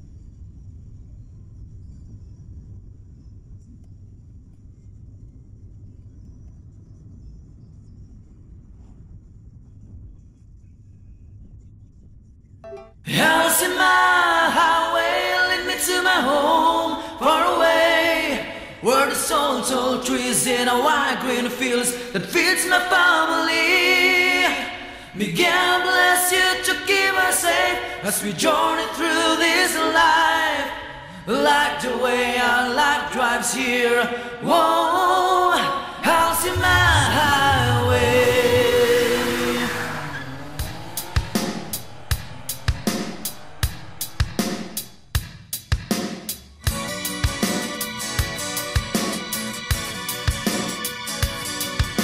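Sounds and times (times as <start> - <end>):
voices singing: 13.1 - 21.4, 22.4 - 45.0
low bass sound: 36.0 - 45.9.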